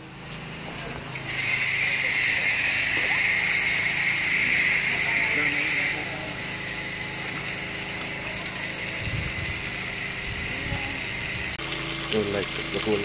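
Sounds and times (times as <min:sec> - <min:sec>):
tap water running into a pot: 0:02.8 - 0:03.9, 0:11.6 - 0:13.0.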